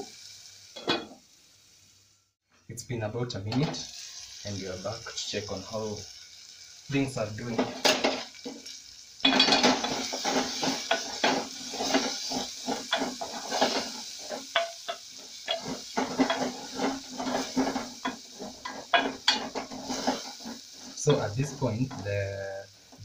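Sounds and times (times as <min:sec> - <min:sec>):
frying sizzle: 0:00.0 - 0:23.0
wooden spoon scraping a pot: 0:09.4 - 0:22.2.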